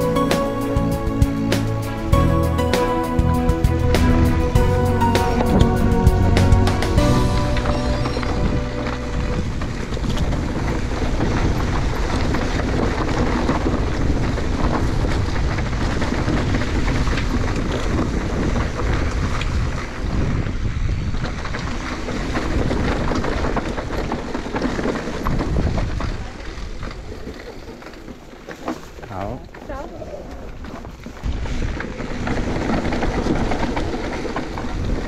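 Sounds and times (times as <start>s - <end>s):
wind on microphone: 8.3s - 27.4s, 29.9s - 35.0s
bike tyres rumbling on trail: 8.6s - 35.0s.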